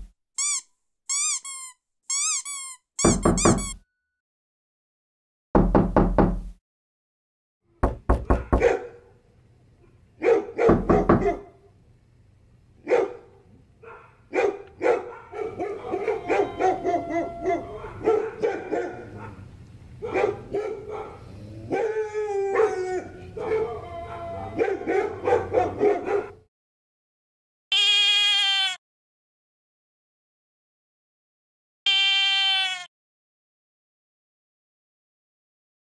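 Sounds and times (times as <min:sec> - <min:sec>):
dog barking: 0:08.3 - 0:09.2, 0:10.2 - 0:11.6, 0:12.8 - 0:26.5
dog crying: 0:15.1 - 0:19.4, 0:21.7 - 0:26.3, 0:27.7 - 0:28.8, 0:31.9 - 0:32.9.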